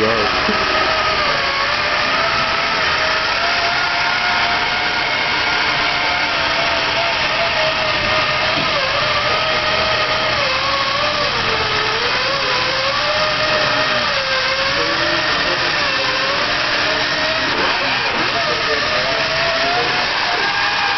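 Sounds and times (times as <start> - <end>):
electric motors and gears whining: 0.0 - 20.9.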